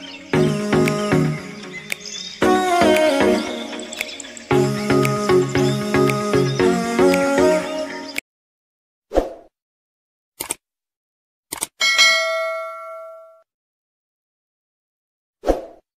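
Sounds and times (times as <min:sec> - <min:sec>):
background music: 0:00.0 - 0:08.2
quick clicks: 0:10.4 - 0:10.6, 0:11.5 - 0:11.8
notification bell ding: 0:11.8 - 0:13.4.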